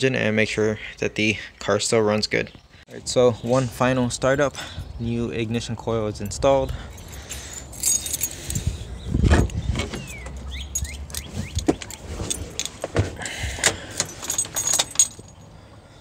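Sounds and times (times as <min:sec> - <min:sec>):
keys jangling: 0:06.9 - 0:08.7, 0:10.1 - 0:15.5
car door opening: 0:09.2 - 0:15.1.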